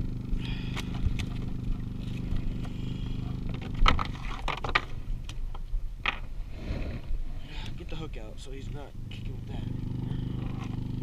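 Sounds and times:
boat motor idling: 0:00.0 - 0:05.2, 0:07.8 - 0:11.0.

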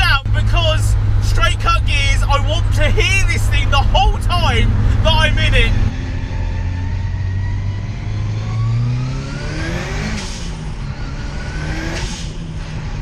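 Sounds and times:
gear change rush of noise: 0:00.0 - 0:07.8
car engine accelerating: 0:00.0 - 0:13.0.

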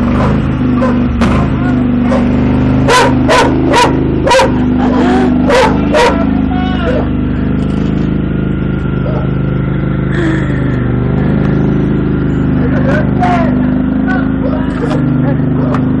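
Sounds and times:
lawn mower engine running: 0:00.0 - 0:16.0
dog barking: 0:00.2 - 0:01.0, 0:01.6 - 0:07.1, 0:09.0 - 0:09.4.

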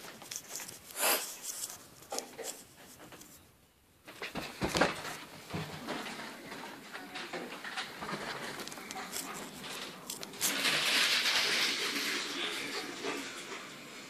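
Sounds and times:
phone rustling and rubbing: 0:00.0 - 0:03.4, 0:08.2 - 0:10.8.

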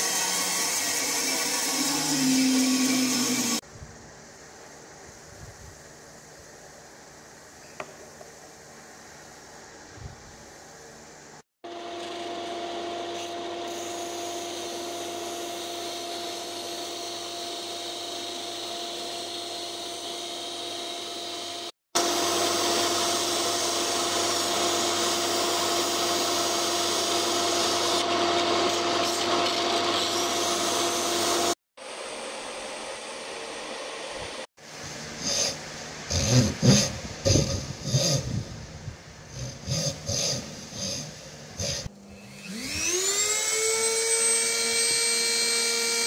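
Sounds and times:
disc sander motor hum: 0:00.0 - 0:03.6, 0:41.9 - 0:46.0.

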